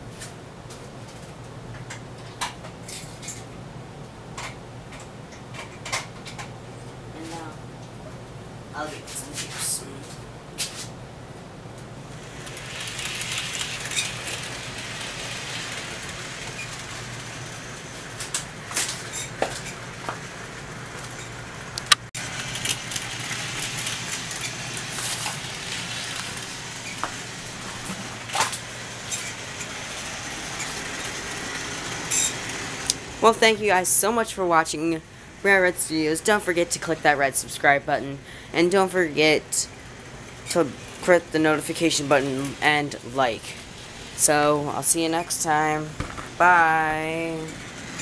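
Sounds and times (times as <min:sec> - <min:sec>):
model train motor and wheels humming: 0:12.0 - 0:35.0, 0:38.6 - 0:48.0.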